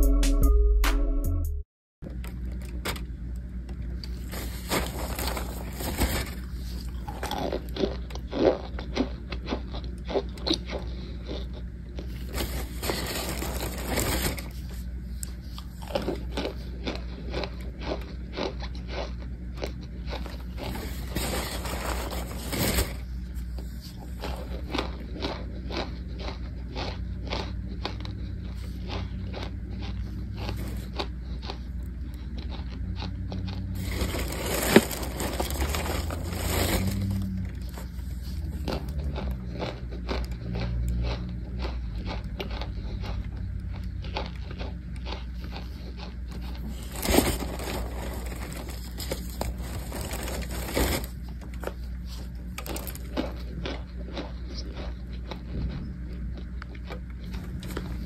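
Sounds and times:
starch chunks crunching: 0:03.4 - 0:58.0
aluminium foil crinkling: 0:04.0 - 0:07.9, 0:12.1 - 0:14.8, 0:20.2 - 0:24.8, 0:33.6 - 0:38.9, 0:46.4 - 0:53.4.

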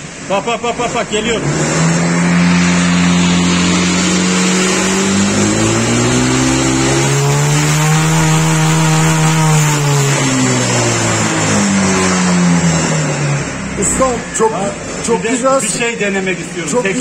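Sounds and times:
scooter engine revving at full throttle: 0:00.0 - 0:15.4.

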